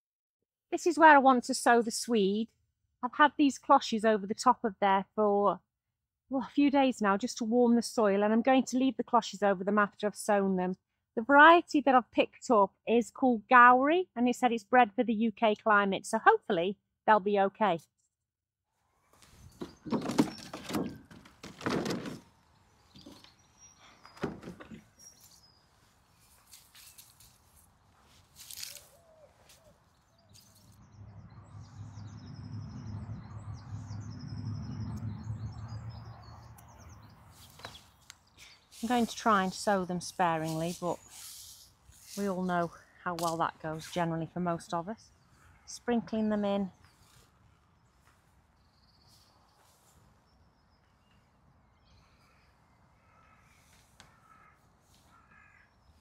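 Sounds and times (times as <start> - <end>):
faint distant bird chirps: 22.4 - 27.2
low rumble: 30.8 - 36.1
small birds trilling: 51.8 - 56.0.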